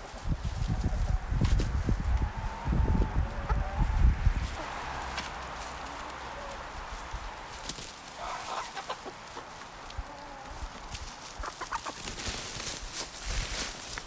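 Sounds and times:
hens clucking: 0:00.0 - 0:12.4
tool digging through compost: 0:10.4 - 0:14.0.

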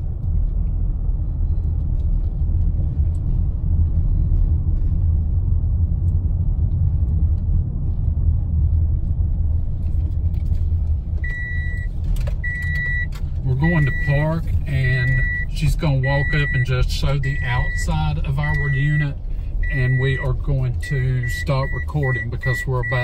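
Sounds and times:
car engine and tyre rumble: 0:00.0 - 0:23.0
high electronic beep: 0:11.2 - 0:23.0.

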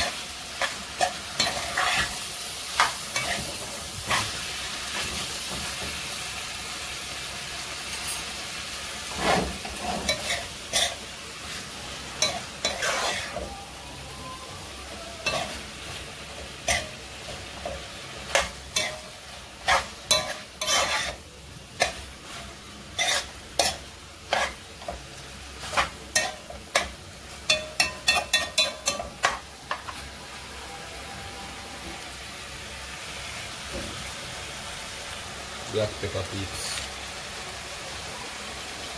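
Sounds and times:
frying sizzle: 0:00.0 - 0:38.9
metal spoon scraping pot: 0:19.6 - 0:21.2, 0:23.0 - 0:24.6.

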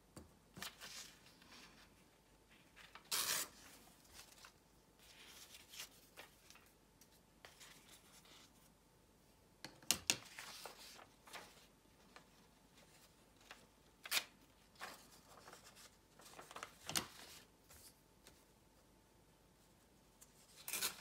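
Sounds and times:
paper rustling: 0:00.6 - 0:08.6, 0:10.2 - 0:18.5.

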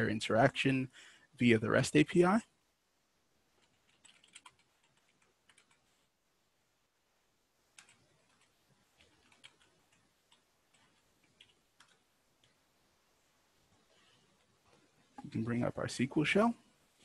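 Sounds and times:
keyboard typing: 0:03.6 - 0:05.9, 0:07.7 - 0:12.6.

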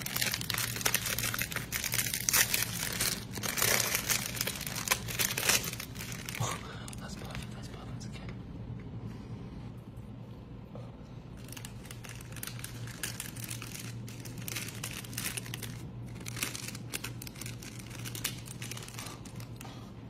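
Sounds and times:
plastic wrapper crinkling: 0:00.0 - 0:07.6, 0:11.4 - 0:19.6.

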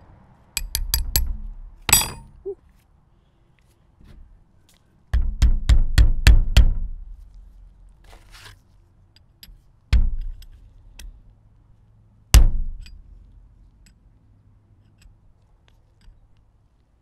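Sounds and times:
hammer blows with metallic ring: 0:01.9 - 0:02.4.

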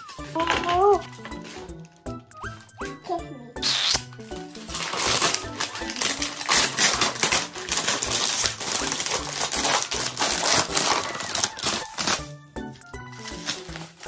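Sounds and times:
plastic bag crinkling: 0:03.6 - 0:12.4, 0:13.0 - 0:14.0.

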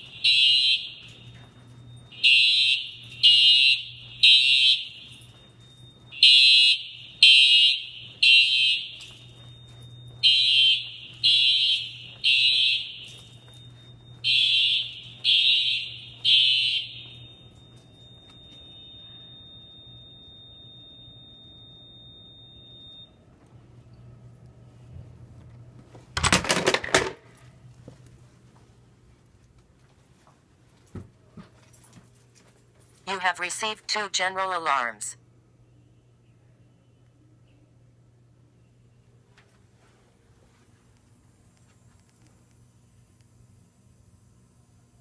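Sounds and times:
fire alarm horns blasting: 0:00.0 - 0:23.5, 0:32.9 - 0:35.2
faint steady high tone: 0:17.0 - 0:24.0.

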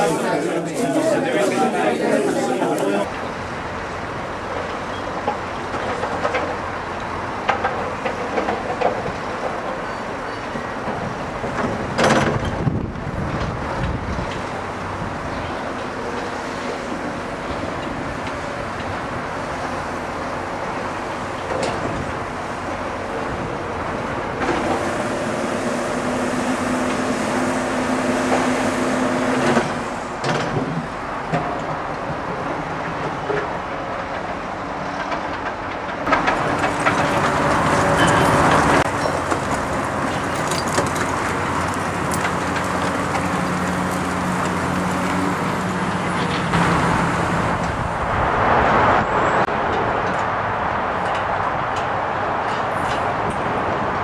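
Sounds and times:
heavy diesel machinery running: 0:10.8 - 0:31.4, 0:35.6 - 0:48.4
steady engine hum: 0:12.7 - 0:30.3.

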